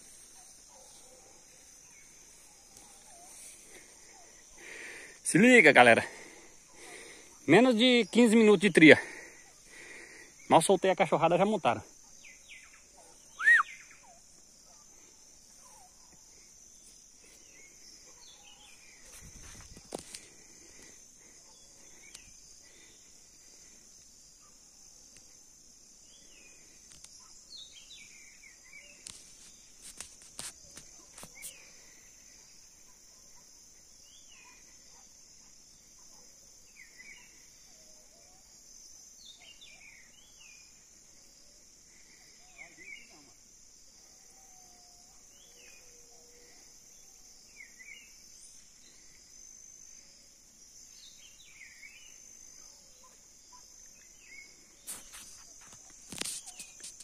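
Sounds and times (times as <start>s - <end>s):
high-pitched insect drone: 1.6s - 35.0s, 35.7s - 57.0s
short falling bird calls: 13.3s - 14.1s.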